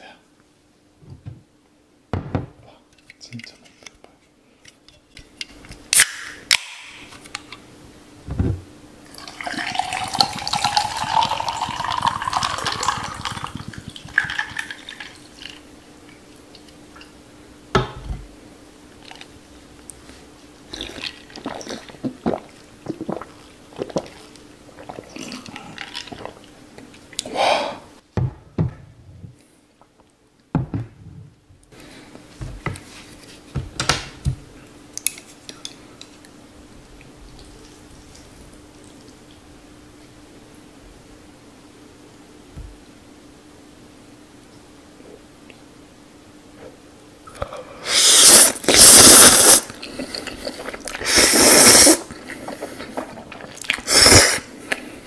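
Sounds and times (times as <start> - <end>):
can cracked open: 5.9 - 7.4
drink pouring over ice: 9.1 - 15.6
person sipping: 9.1 - 15.6, 20.1 - 26.6, 27.2 - 28.0, 47.3 - 55.0.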